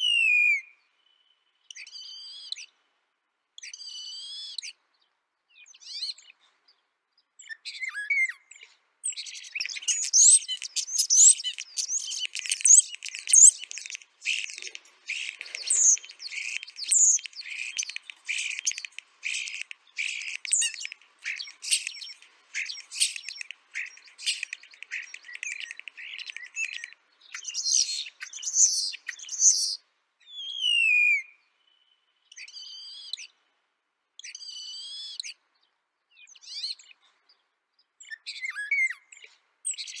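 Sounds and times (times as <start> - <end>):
starling song with clicks and whistles: 9.1 - 29.8.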